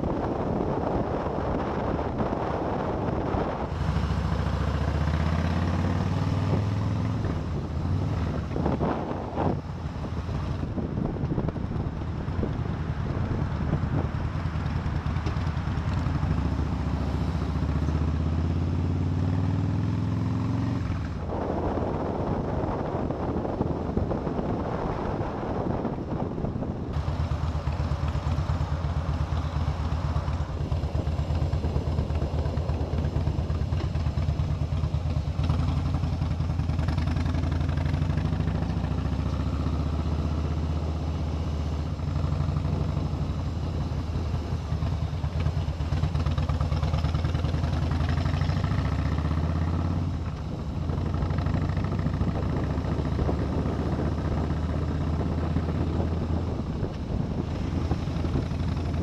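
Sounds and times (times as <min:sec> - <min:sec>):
wind noise on microphone: 0:00.0 - 0:17.0, 0:19.6 - 0:36.8, 0:49.2 - 0:59.0
motorcycle engine accelerating: 0:00.0 - 0:59.0.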